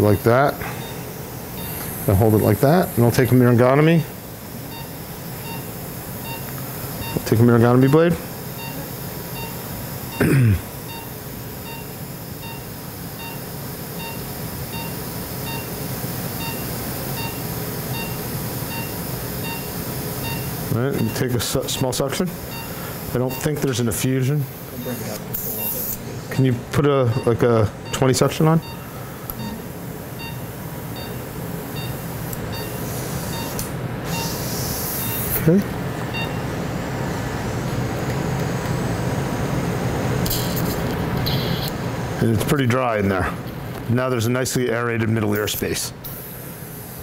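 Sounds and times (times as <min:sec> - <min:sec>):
patient monitor beeping: 0:00.0 - 0:04.0, 0:04.6 - 0:36.6, 0:40.3 - 0:41.9
equipment hum: 0:00.0 - 0:47.0
steady hiss: 0:00.0 - 0:47.0.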